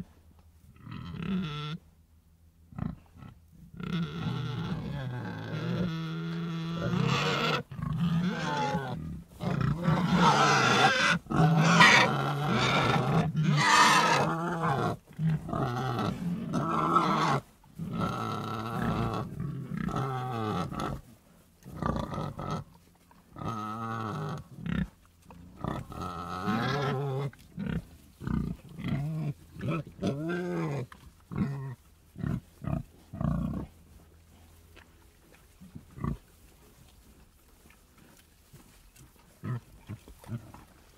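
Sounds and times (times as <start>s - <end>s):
pigs grunting: 2.7s - 40.9s
pigs squealing: 3.8s - 21.0s, 25.6s - 31.8s.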